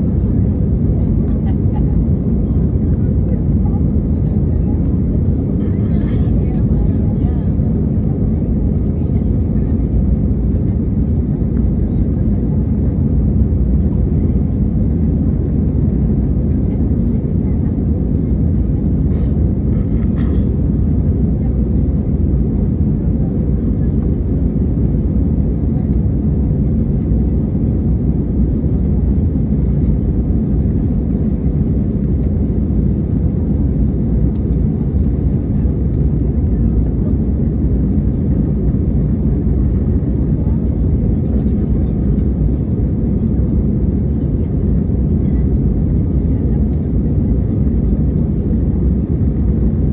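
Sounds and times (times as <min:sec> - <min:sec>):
airliner cabin engine rumble: 0:00.0 - 0:49.9.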